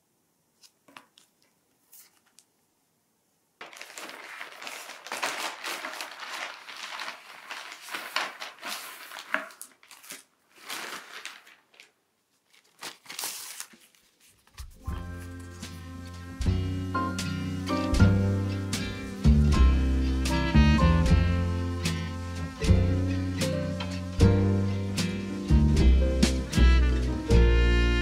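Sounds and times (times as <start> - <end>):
packaging crinkling: 3.6 - 15.6.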